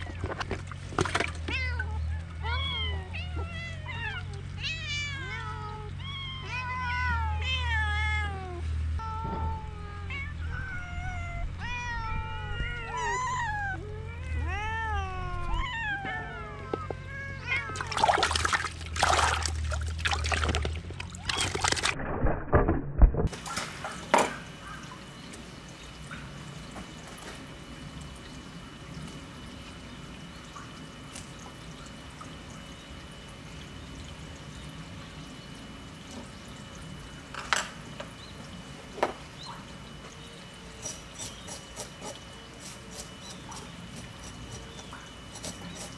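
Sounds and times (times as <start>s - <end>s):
cats meowing: 1.4s - 18.2s.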